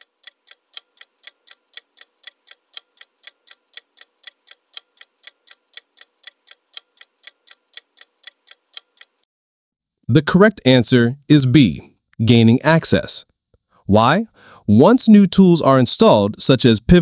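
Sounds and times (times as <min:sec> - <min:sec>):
clock ticking: 0:00.0 - 0:09.3.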